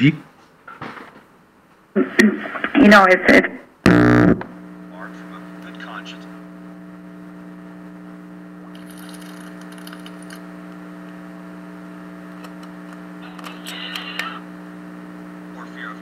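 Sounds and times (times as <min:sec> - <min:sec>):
steady electrical hum: 0:01.1 - 0:16.0
static burst: 0:02.0 - 0:08.7.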